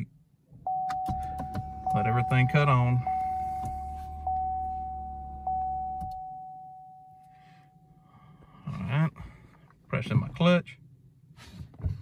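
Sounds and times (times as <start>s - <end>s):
car warning chime: 0.6s - 8.3s
low hum: 0.7s - 8.7s.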